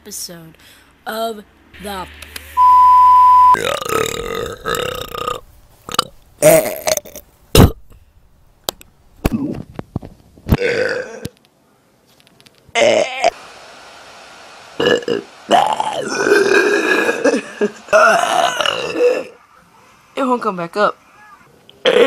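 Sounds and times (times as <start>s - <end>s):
steady high beep tone: 2.5s - 3.6s
person burping loudly: 3.6s - 7.8s, 10.5s - 11.3s, 12.8s - 13.4s, 14.8s - 19.4s.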